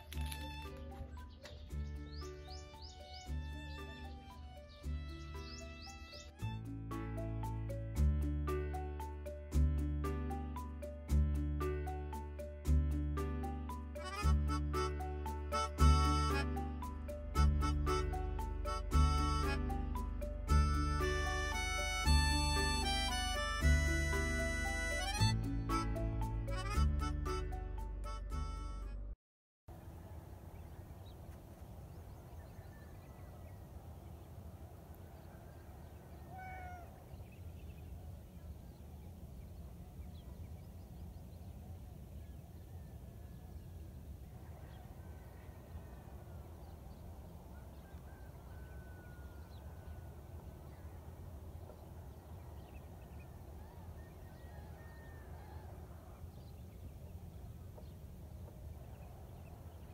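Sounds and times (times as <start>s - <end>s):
cats meowing faintly: 36.1s - 37.1s.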